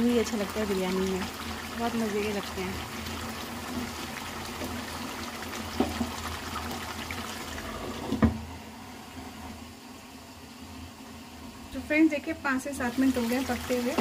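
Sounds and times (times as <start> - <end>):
curry simmering and bubbling: 0.0 - 8.3.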